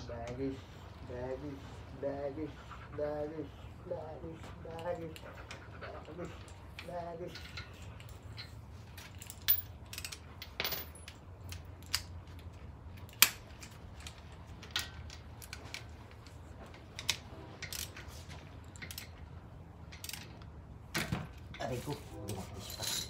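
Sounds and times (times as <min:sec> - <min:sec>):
metal tools clinking and knocking: 0:06.4 - 0:12.4, 0:19.9 - 0:23.0.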